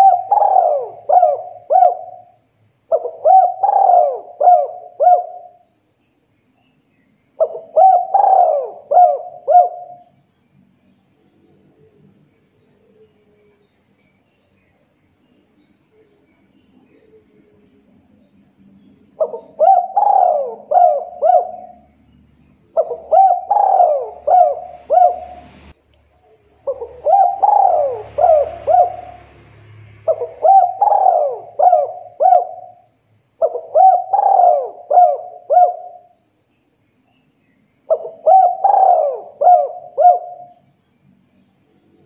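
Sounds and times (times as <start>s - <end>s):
dove cooing: 0.0s - 5.6s, 7.4s - 10.2s, 19.1s - 22.0s, 22.7s - 25.7s, 26.6s - 29.4s, 30.0s - 36.2s, 37.9s - 40.7s.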